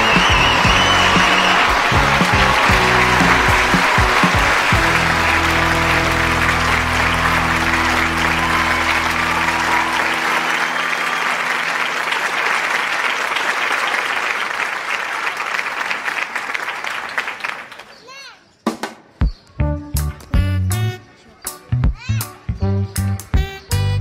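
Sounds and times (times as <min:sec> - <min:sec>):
applause: 0:00.0 - 0:18.2
sustained musical chord: 0:02.4 - 0:12.3.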